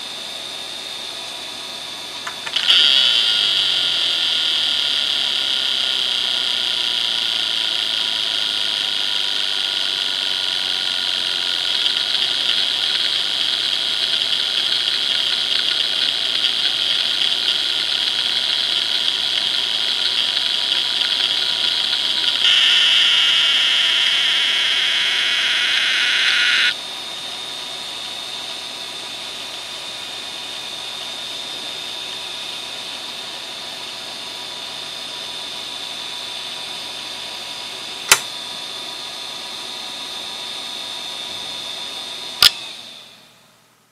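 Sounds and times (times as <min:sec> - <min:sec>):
hard drive whine: 0:02.0 - 0:26.8.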